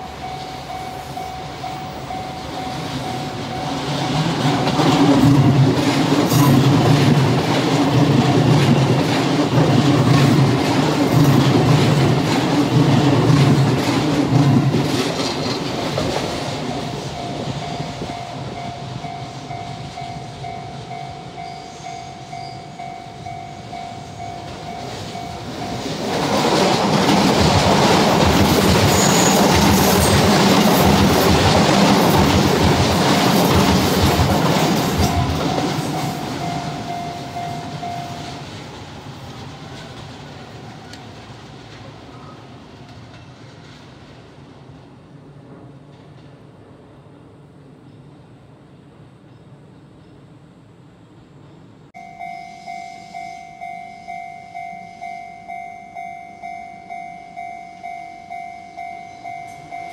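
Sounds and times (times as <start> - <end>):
crossing warning bell ringing: 0.0 - 41.2, 52.0 - 59.9
train passing with roar: 0.0 - 59.9
train wheels clacking on rail joints: 0.2 - 43.9.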